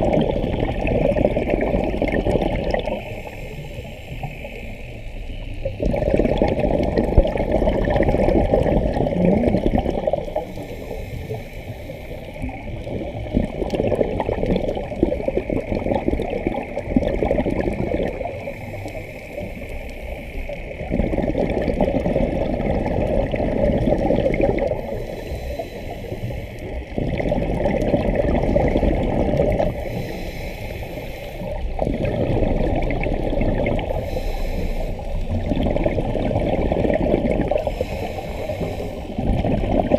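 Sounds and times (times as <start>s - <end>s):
underwater exhaled bubbles gurgling: 0.0s - 39.9s
regulator inhale hiss: 2.7s - 5.8s, 10.2s - 12.9s, 18.4s - 20.9s, 24.6s - 27.0s, 29.4s - 32.1s, 33.8s - 35.4s, 37.5s - 39.3s.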